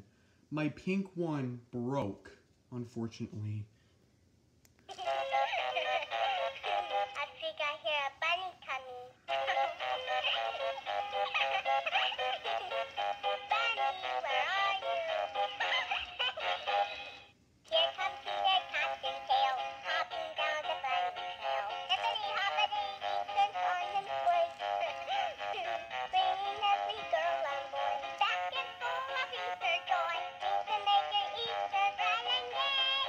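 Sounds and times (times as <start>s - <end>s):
toy playing a children's tune: 4.9s - 33.0s.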